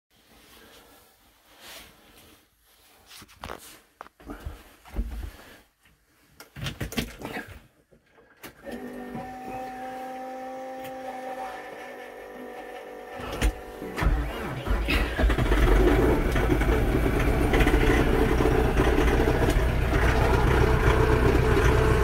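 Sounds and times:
diesel engine cranking and starting: 11.2s - 22.0s.

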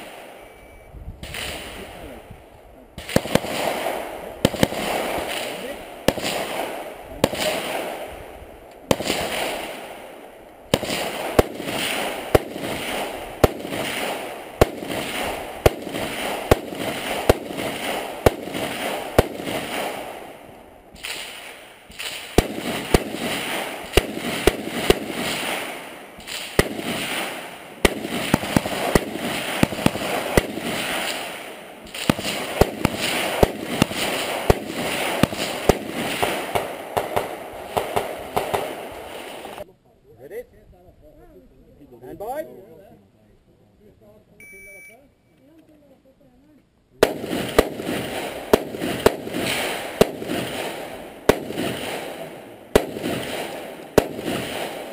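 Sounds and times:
rifle shots in rapid strings: 3.0s - 8.2s, 8.9s - 20.3s, 21.0s - 39.6s, 47.0s - 54.9s.

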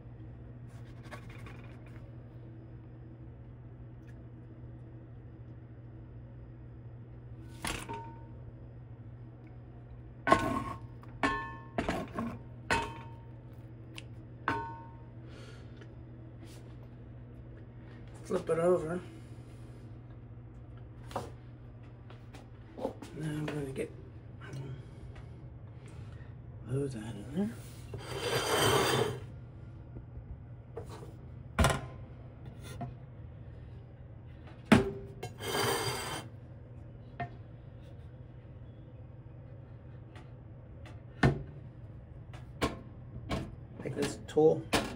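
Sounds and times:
low steady hum: 0.0s - 44.9s
metal rack scraping: 27.9s - 29.2s, 35.3s - 36.3s.

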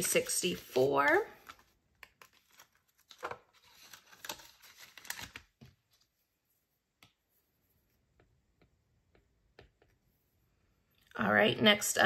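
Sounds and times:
banknotes rustling against plastic: 0.0s - 6.3s.

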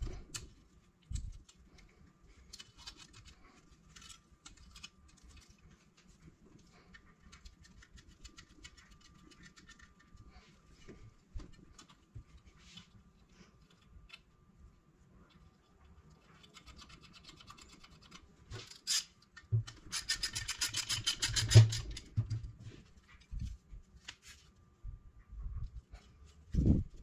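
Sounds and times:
metal parts knocking and scraping: 18.6s - 22.4s.

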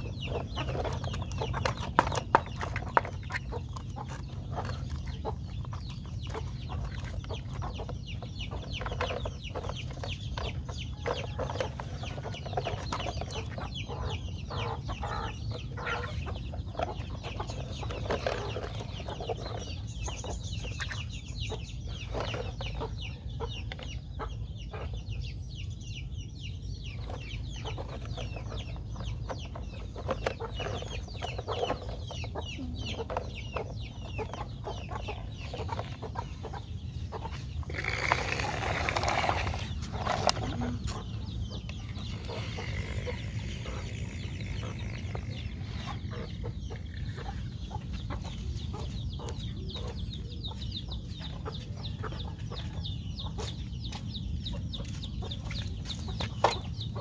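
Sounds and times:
damp soil scraping and crumbling: 37.5s - 41.1s.

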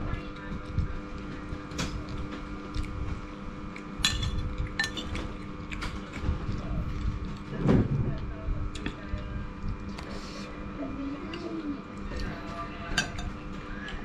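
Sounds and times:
cutlery clinking on ceramic dishes: 4.0s - 5.2s, 12.9s - 13.4s.

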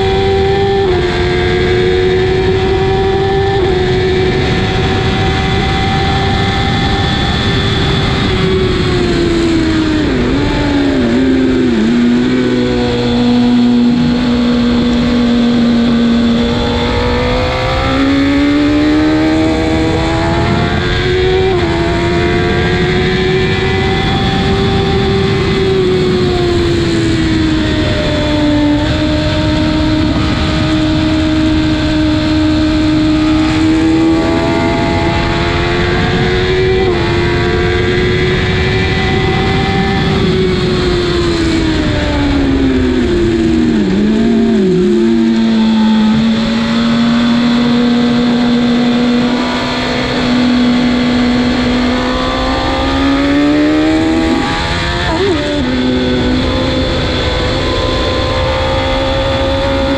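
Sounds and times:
motorcycle engine revving: 0.0s - 59.9s.

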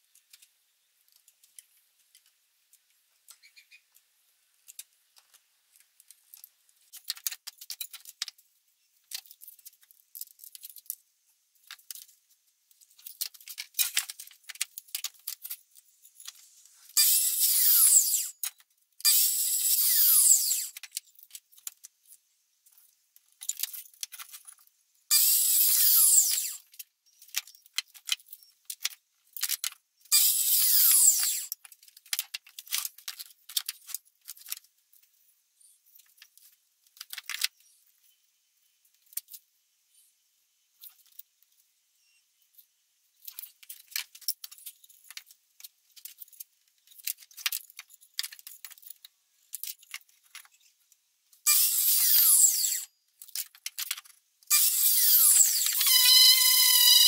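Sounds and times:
wood and tools clattering: 22.7s - 35.1s, 51.5s - 56.8s.

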